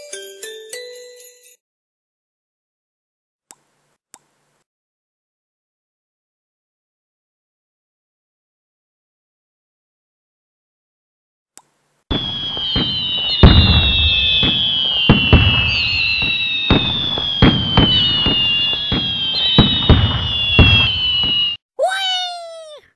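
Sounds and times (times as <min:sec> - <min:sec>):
firework bangs and crackle: 0:12.1 - 0:21.6
fireworks whistling: 0:12.1 - 0:21.6.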